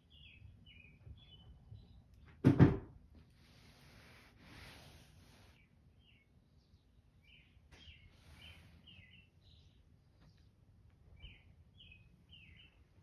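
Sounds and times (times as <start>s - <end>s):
bird chirping: 0.0s - 2.4s, 5.3s - 13.0s.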